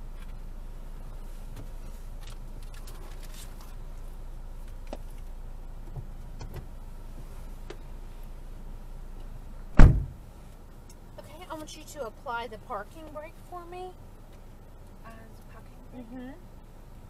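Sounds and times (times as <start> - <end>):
car engine idling: 0.0 - 17.0
small clicks and rustles: 1.0 - 5.4
short knocks: 9.7 - 10.2.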